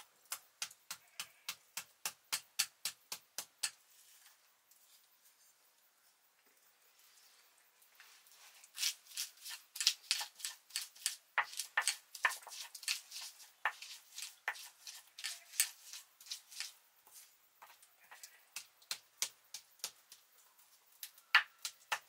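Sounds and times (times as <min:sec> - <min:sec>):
stone pestle crushing on stone: 0:00.0 - 0:03.8, 0:08.8 - 0:16.8, 0:21.1 - 0:22.0.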